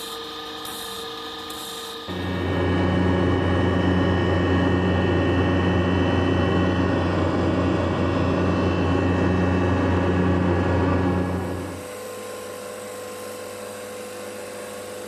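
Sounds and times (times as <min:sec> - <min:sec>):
electric motor humming: 0:00.7 - 0:12.0.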